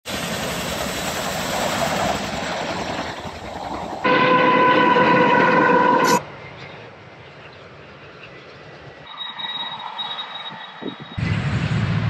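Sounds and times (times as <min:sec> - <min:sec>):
helicopter rotor noise: 0:00.1 - 0:11.4
locomotive air horn blast: 0:04.0 - 0:06.2.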